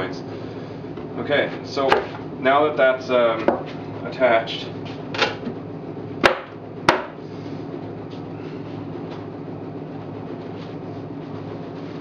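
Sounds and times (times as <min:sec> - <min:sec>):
low mechanical machine hum: 0:00.0 - 0:12.0.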